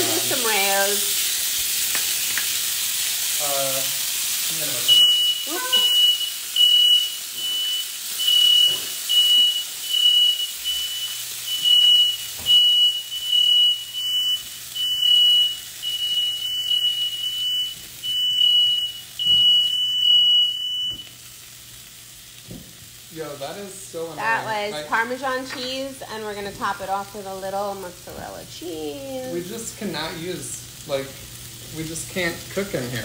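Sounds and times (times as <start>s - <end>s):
faint sizzle: 0.0s - 33.0s
smoke alarm beeping: 4.7s - 21.4s.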